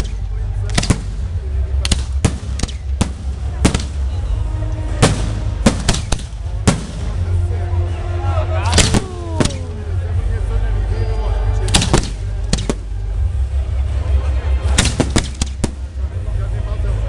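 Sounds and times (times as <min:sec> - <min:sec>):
firework shells bursting: 0:00.0 - 0:04.1, 0:05.0 - 0:07.2, 0:14.7 - 0:15.9
low rumble: 0:00.0 - 0:17.0.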